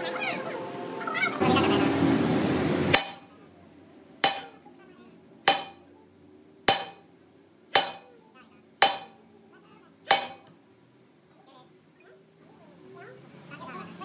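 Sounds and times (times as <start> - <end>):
hammer on metal: 2.9 - 3.3, 4.2 - 4.6, 5.4 - 5.9, 6.6 - 7.1, 7.7 - 8.2, 8.8 - 9.2, 10.0 - 10.5.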